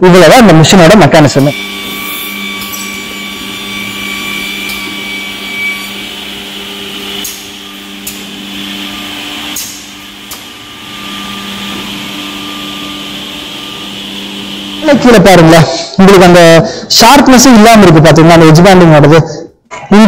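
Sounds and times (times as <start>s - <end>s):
machine motors humming and whining: 1.4s - 15.5s.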